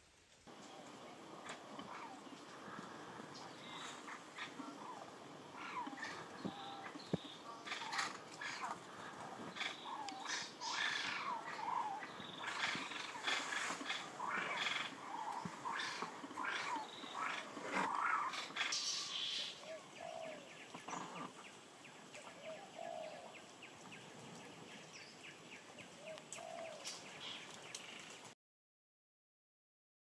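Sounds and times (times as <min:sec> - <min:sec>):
loud animal calls: 0:01.2 - 0:21.4.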